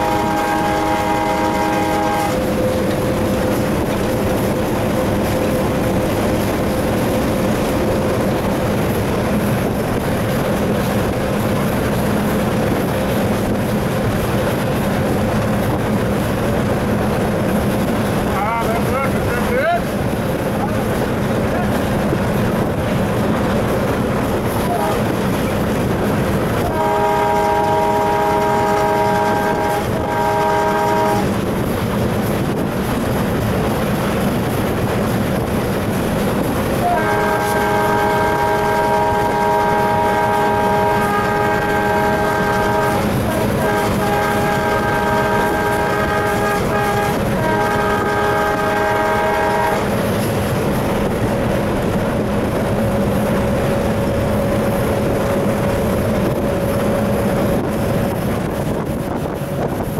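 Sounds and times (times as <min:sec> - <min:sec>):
locomotive horn blasts: 0:00.0 - 0:03.0, 0:24.6 - 0:25.2, 0:26.6 - 0:31.4, 0:36.8 - 0:50.0
diesel locomotive engine and wheels: 0:00.0 - 0:59.9.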